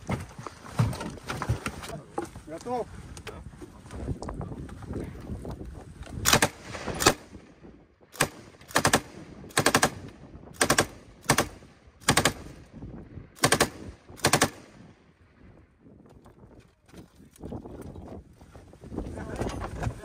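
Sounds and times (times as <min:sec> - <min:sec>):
machine gun bursts: 0:08.2 - 0:10.0, 0:10.6 - 0:12.4, 0:13.4 - 0:14.6.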